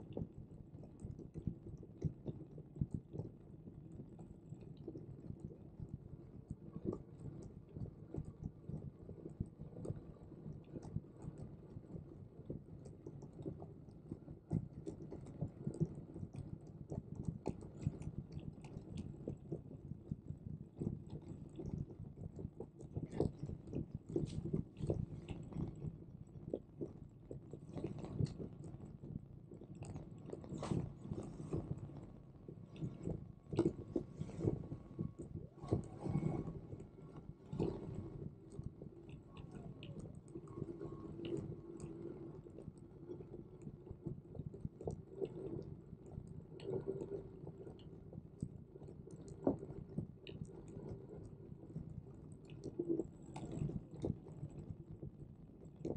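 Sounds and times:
steady low hum: 0.0s - 55.9s.

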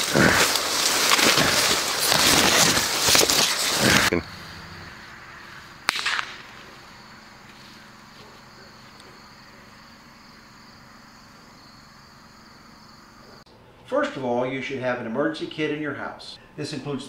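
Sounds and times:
insects chirring: 0.0s - 13.5s
gunshot: 5.8s - 6.6s.

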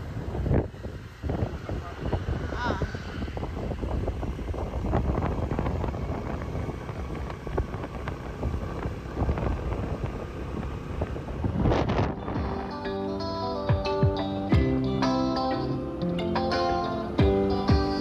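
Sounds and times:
wind buffeting microphone: 0.0s - 14.8s
scooter engine: 0.0s - 18.0s
guitar music: 12.0s - 18.0s.

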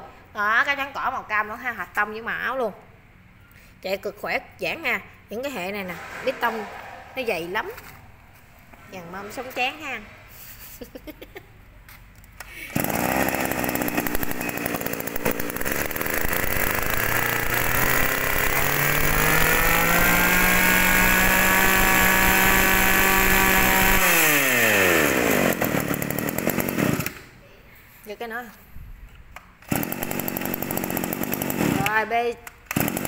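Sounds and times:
brush cutter engine: 12.4s - 27.3s, 29.7s - 32.1s, 32.7s - 33.0s.

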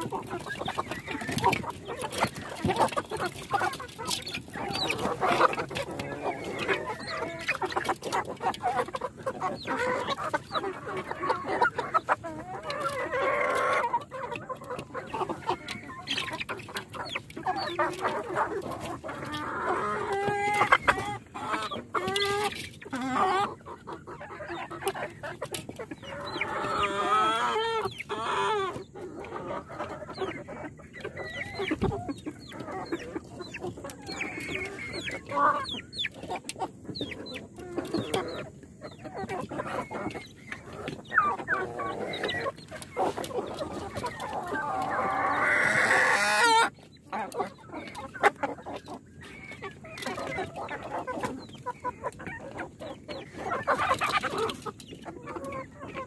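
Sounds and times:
chickens clucking and calling: 0.0s - 56.0s.

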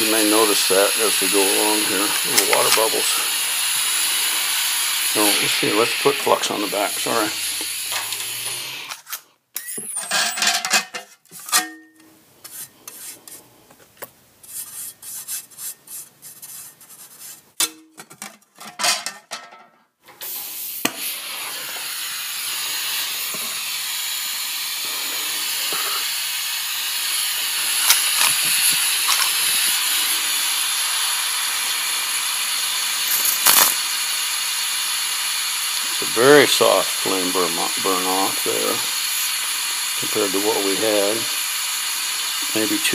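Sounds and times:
welding torch flame hissing: 0.0s - 9.0s, 20.2s - 42.9s
handling clicks and scrapes: 12.4s - 17.5s, 27.8s - 29.6s.

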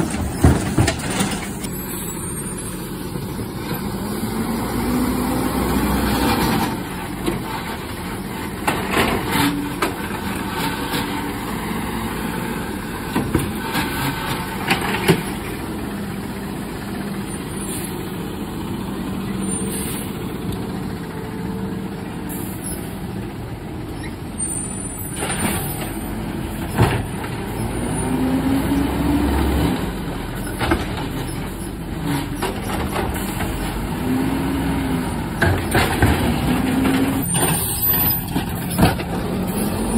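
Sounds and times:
bangs and clanks from load: 0.0s - 1.8s, 25.1s - 27.5s, 35.4s - 39.9s
garbage truck engine revving: 0.0s - 23.3s, 25.2s - 39.9s.

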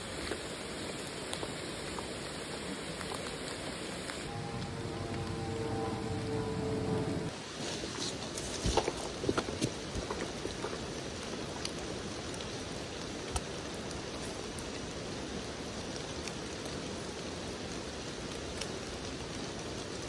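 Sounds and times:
rain patter under trees: 0.0s - 20.0s
raindrops tapping close by: 8.2s - 20.0s.

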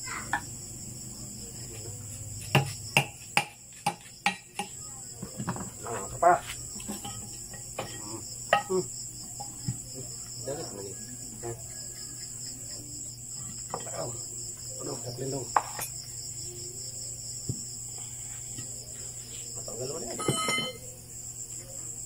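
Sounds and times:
high insect chirping: 0.0s - 22.0s.

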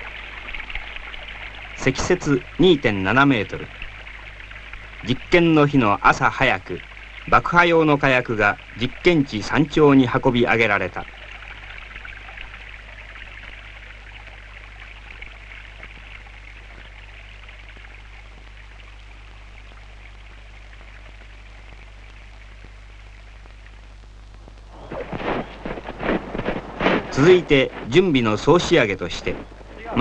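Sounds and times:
constant low hum: 0.0s - 30.0s
film soundtrack hiss: 0.0s - 30.0s
person speaking: 27.0s - 30.0s.

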